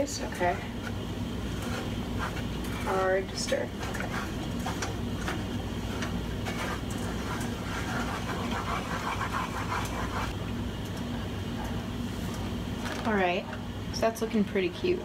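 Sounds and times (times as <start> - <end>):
wooden spoon scraping saucepan: 0.0 - 10.4
steady low hum: 0.0 - 15.0.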